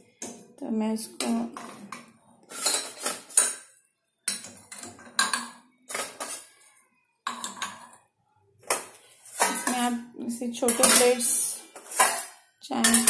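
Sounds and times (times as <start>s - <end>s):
ceramic mugs clinking on metal: 4.3s - 6.4s, 7.3s - 8.0s, 10.7s - 11.4s, 12.0s - 13.0s.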